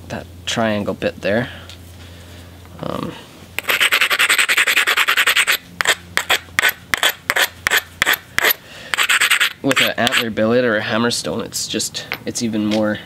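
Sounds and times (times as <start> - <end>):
stone rasping against stone: 3.6 - 10.3.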